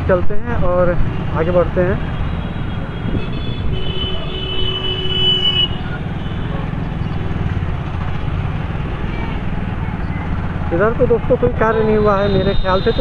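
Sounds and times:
vehicle rumble and street traffic: 0.0s - 13.0s
car horn: 2.1s - 6.6s, 11.6s - 13.0s.

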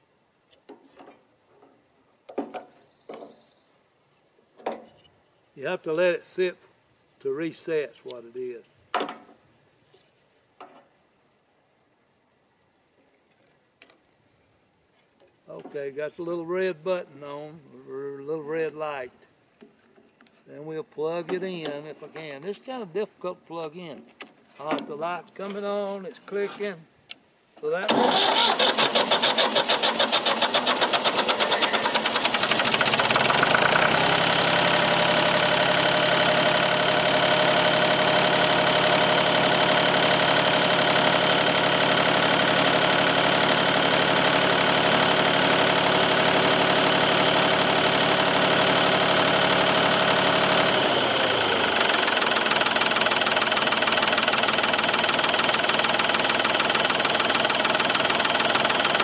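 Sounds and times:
tractor engine cranking and running: 27.7s - 59.0s.

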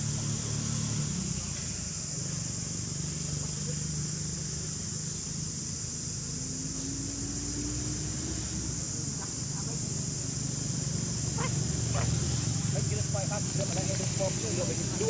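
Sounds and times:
high-pitched insect drone: 0.0s - 15.0s.

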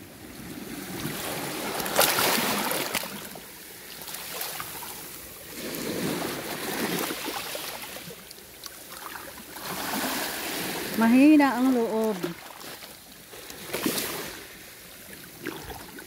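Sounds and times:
waves lapping on pebbly shore: 0.0s - 16.0s.

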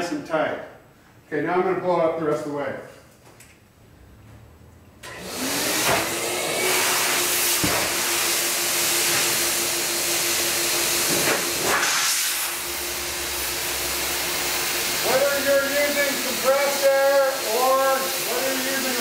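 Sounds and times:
electric blower rushing air: 5.0s - 19.0s.

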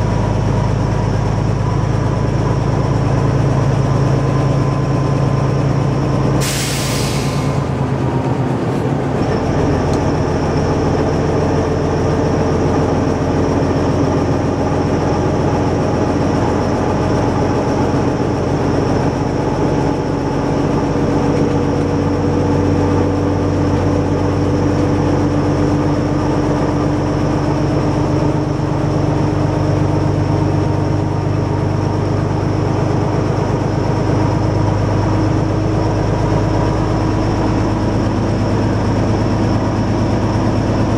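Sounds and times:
railcar engine drone: 0.0s - 40.9s
wheel and rail noise: 0.0s - 40.9s
brief hiss: 6.4s - 7.7s.

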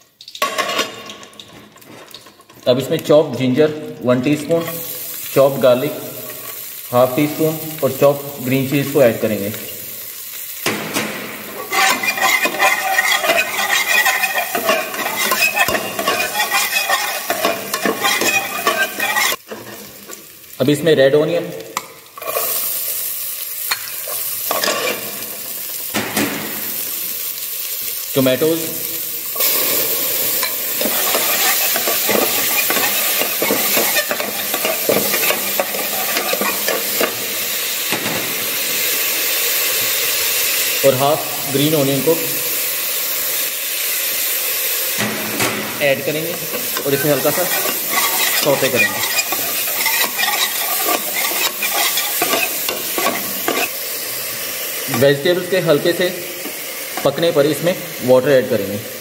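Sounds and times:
food sizzling in hot oil: 0.0s - 59.0s
metal ladle scraping stockpot: 11.4s - 20.1s, 29.4s - 37.4s, 45.0s - 53.8s.

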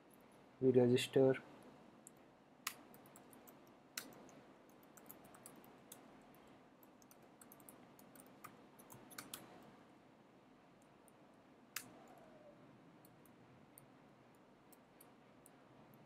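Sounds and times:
typing on computer keyboard: 2.7s - 6.1s, 6.8s - 9.5s.

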